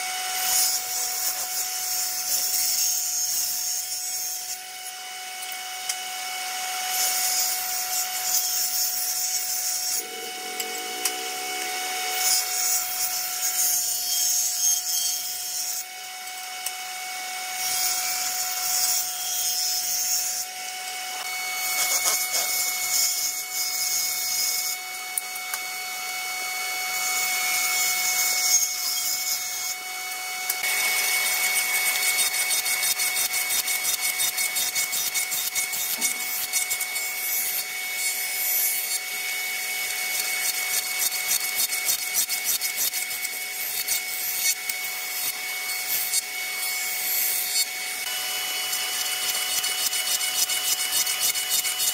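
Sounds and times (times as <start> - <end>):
jointer planing board edge: 29.6 - 37.7
table saw ripping boards: 30.6 - 39.0.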